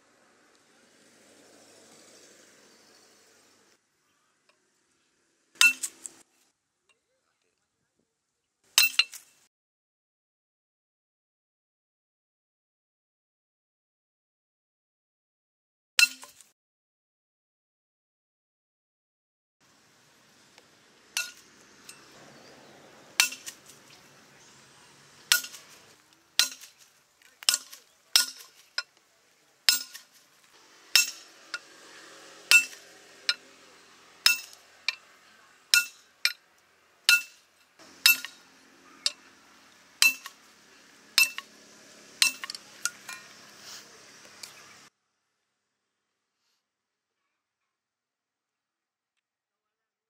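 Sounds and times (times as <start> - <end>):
hammer striking steel rod: 5.6 - 6.1, 21.2 - 22.1, 23.2 - 23.7, 25.3 - 25.8, 26.4 - 26.8, 27.4 - 28.9, 29.7 - 30.1, 30.9 - 31.7, 32.5 - 33.5, 34.2 - 35.1, 35.7 - 36.4, 37.1 - 38.4, 40.0 - 40.4, 41.2 - 41.5, 42.2 - 43.4.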